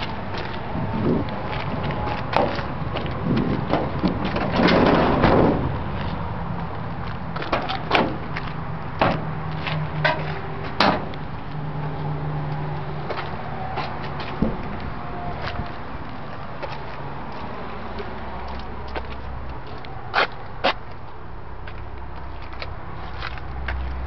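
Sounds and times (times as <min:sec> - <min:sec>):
van door handling noise: 0:02.2 - 0:05.8, 0:07.4 - 0:09.4, 0:10.0 - 0:11.1.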